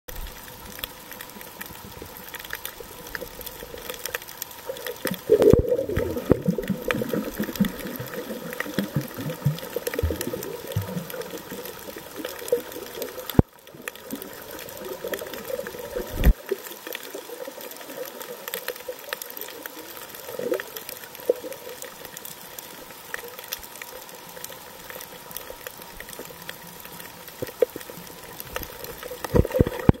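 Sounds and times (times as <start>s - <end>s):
muffled underwater water movement: 0.1s - 30.0s
bubbly swirls: 1.2s - 18.4s, 27.4s - 30.0s.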